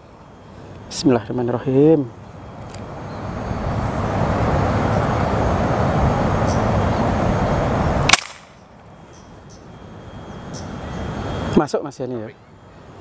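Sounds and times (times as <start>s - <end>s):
steady noise: 0.0s - 8.9s
air rifle shot: 8.1s - 8.6s.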